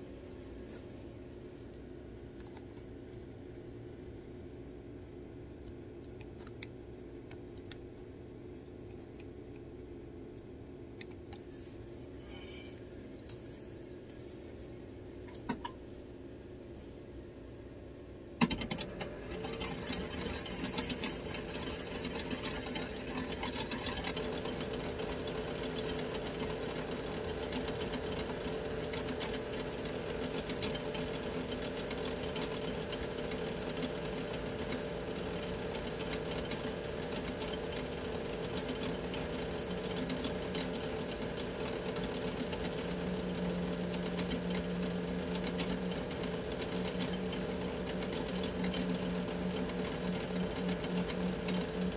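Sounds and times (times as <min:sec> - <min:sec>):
lathe spindle humming and whining: 0:18.5 - 0:51.9.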